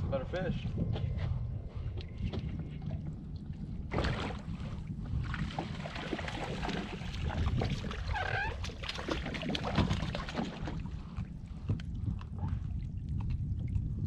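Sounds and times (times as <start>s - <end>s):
low steady rumble: 0.0s - 14.0s
fish splashing at water surface: 5.4s - 10.9s.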